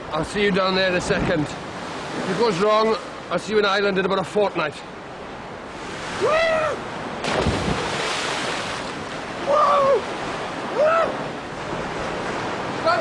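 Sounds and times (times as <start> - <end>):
churning surf: 0.0 - 13.0
splash into water: 7.2 - 9.2.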